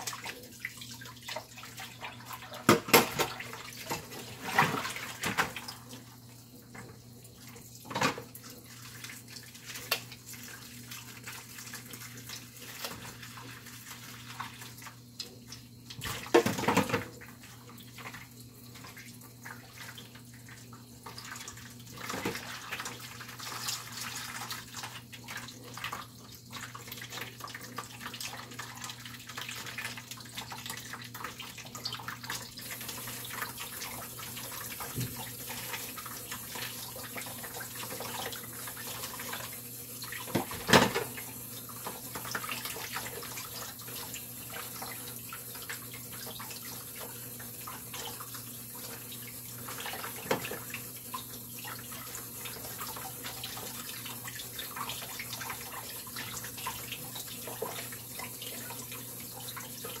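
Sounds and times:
tap running into metal sink: 0:02.6 - 0:03.3, 0:34.8 - 0:35.3, 0:40.3 - 0:41.2, 0:50.2 - 0:50.7
splashes and knocks: 0:02.6 - 0:05.6, 0:16.0 - 0:17.1, 0:40.3 - 0:41.2.

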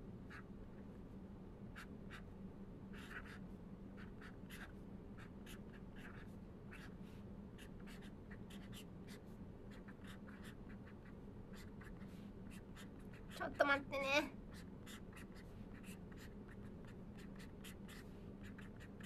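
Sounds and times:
faint low hum: 0:00.0 - 0:19.0
pen scratching on paper: 0:02.9 - 0:03.4, 0:04.0 - 0:07.0, 0:07.6 - 0:13.7, 0:14.5 - 0:19.0.

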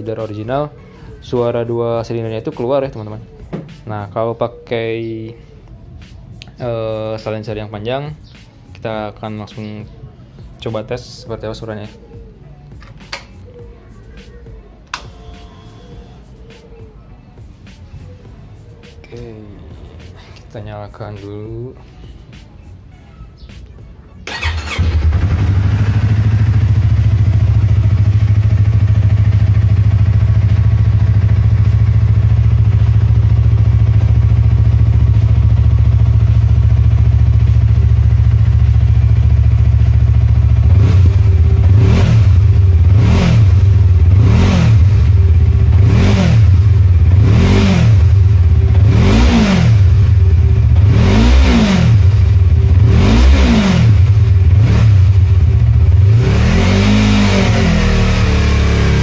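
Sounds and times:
motorcycle engine idling and revving: 0:24.2 - 0:59.0.

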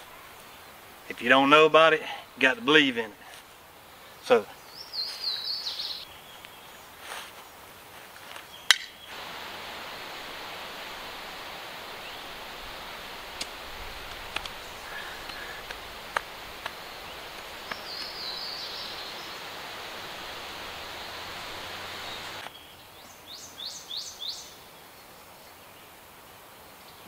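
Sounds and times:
wind in the trees: 0:00.0 - 0:01.2, 0:03.5 - 0:27.0
bird chirping: 0:03.9 - 0:07.0, 0:08.4 - 0:25.2
light clicks: 0:13.3 - 0:18.2.

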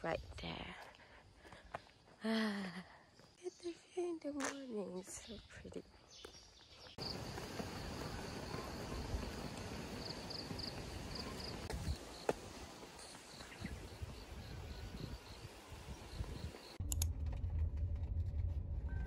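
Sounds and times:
outdoor ambient noise: 0:00.0 - 0:19.0
insects chirping: 0:06.0 - 0:16.8.

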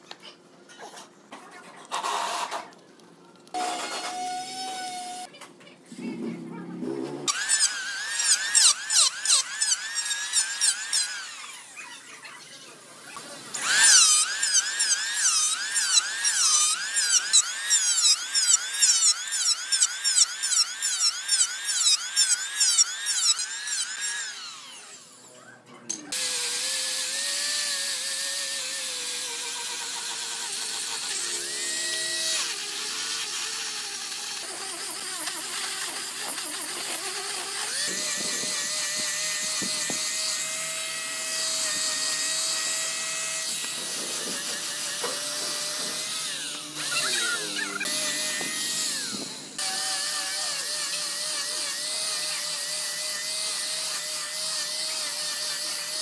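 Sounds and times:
handheld power tool whining: 0:03.5 - 0:05.3, 0:07.2 - 0:12.2, 0:13.5 - 0:25.3, 0:26.1 - 0:56.0
angle grinder sanding wood: 0:13.5 - 0:25.1, 0:26.1 - 0:56.0.

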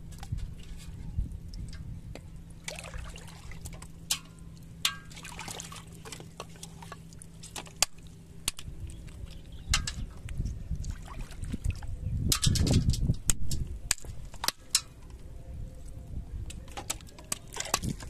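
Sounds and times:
shallow water splashing: 0:02.4 - 0:10.2, 0:10.8 - 0:12.0.

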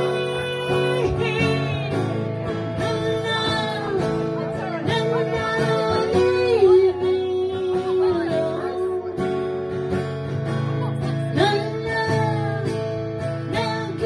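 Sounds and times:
woman singing long notes: 0:00.0 - 0:09.3
acoustic guitar strumming: 0:00.0 - 0:14.0.

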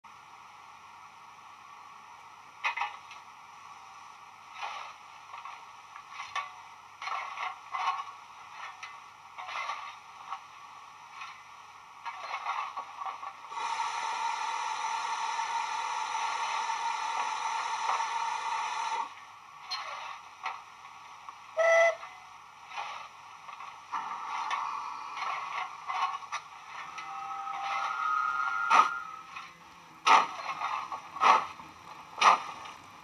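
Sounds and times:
tinny scrapes and clanks: 0:04.5 - 0:10.5, 0:11.1 - 0:13.4, 0:19.6 - 0:20.7, 0:22.0 - 0:32.8
steam hissing: 0:13.5 - 0:19.1, 0:22.6 - 0:26.0, 0:26.6 - 0:29.4.

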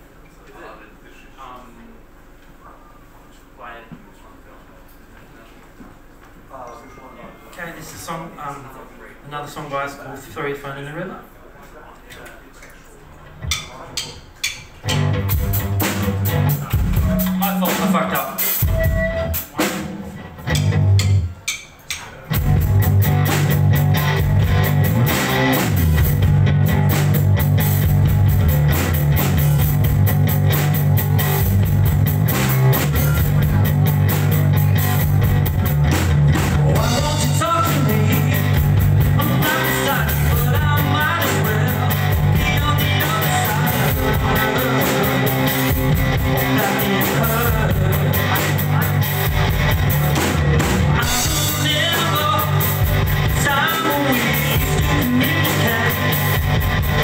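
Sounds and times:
rock band playing live: 0:14.4 - 0:57.0.

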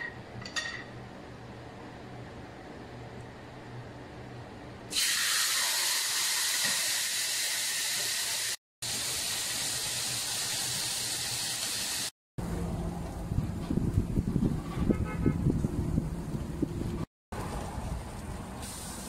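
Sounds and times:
chicken sizzling in a frying pan: 0:05.0 - 0:12.1.

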